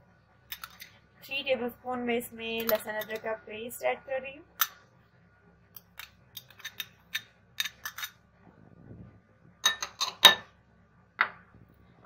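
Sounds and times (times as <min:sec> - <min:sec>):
metal spoon clinking on glass: 0:02.6 - 0:03.3, 0:09.6 - 0:10.4.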